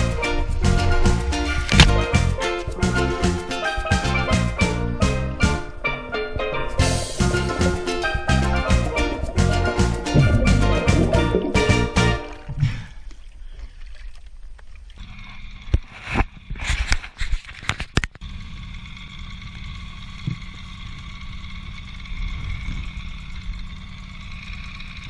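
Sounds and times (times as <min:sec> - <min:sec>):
outboard motor running: 0:06.8 - 0:12.9, 0:14.9 - 0:16.6, 0:18.2 - 0:25.0
water sloshing: 0:07.2 - 0:15.1.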